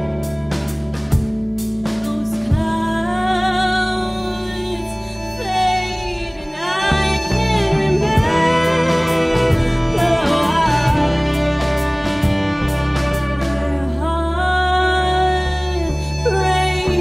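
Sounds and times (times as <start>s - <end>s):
woman singing: 2.0s - 12.3s, 13.2s - 17.0s
violin: 2.4s - 17.0s
folk band playing: 3.5s - 17.0s.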